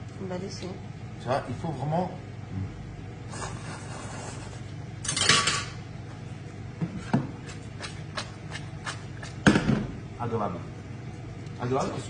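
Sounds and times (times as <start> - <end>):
metal tongs clattering on pan: 5.0 - 5.8.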